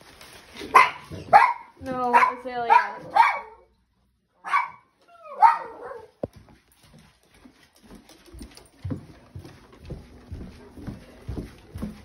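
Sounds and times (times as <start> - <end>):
dog barking: 0.7 - 3.7, 4.4 - 6.2
footsteps on wooden floor: 6.1 - 12.0.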